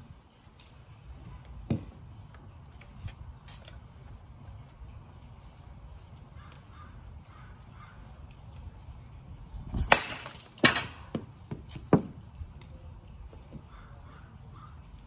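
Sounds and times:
bat cracking on ball: 9.8s - 12.2s.

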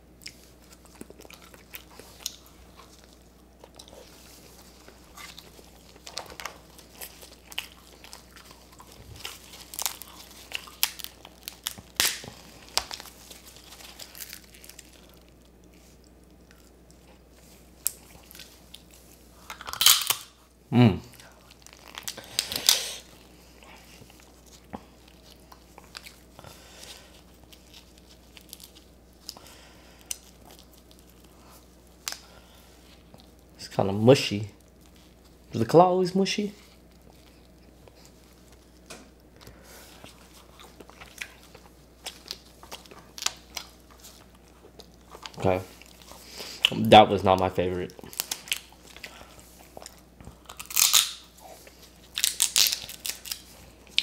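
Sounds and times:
chewing and sucking: 0.2s - 20.0s, 36.6s - 46.8s
crab shell cracking: 5.2s - 15.6s, 19.5s - 20.3s, 49.8s - 51.4s, 52.1s - 54.0s.

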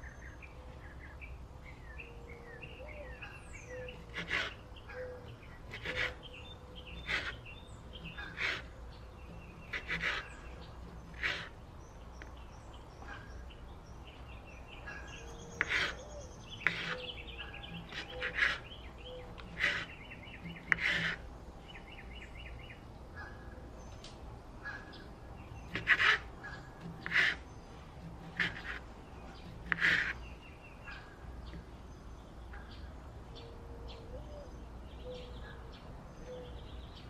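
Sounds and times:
birds chirping: 0.0s - 37.0s
knife cutting on wooden board: 3.9s - 4.6s, 5.7s - 6.2s, 6.9s - 11.6s, 15.5s - 16.0s, 16.6s - 21.3s, 25.6s - 30.2s.

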